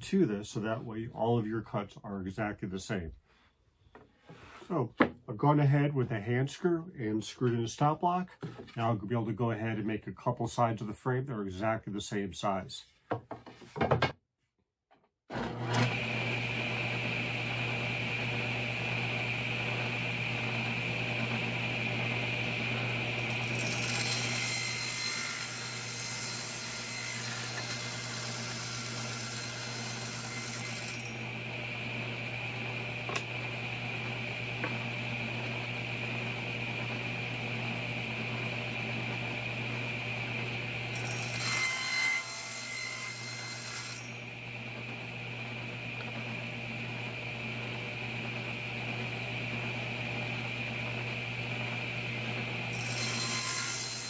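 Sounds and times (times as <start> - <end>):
table saw running: 15.3 - 54.0
saw blade cutting wood: 21.2 - 35.0, 40.9 - 44.3, 52.7 - 54.0.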